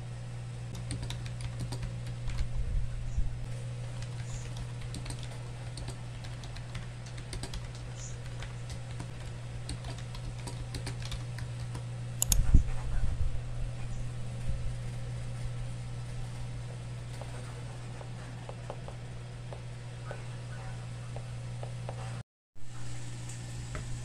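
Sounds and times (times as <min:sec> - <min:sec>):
steady low hum: 0:00.0 - 0:24.0
keyboard key clicks: 0:09.7 - 0:12.4.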